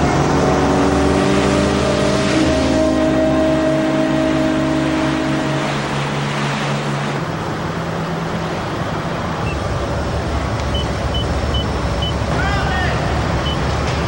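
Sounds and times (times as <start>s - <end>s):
ship engine rumble: 0.0s - 14.0s
short high beeps: 13.4s - 13.6s.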